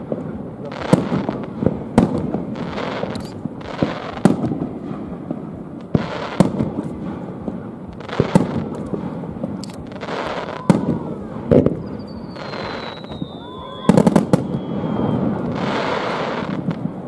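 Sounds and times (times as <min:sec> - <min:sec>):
firework shells bursting: 0:00.8 - 0:17.0
rolling echo of bangs: 0:03.4 - 0:10.0.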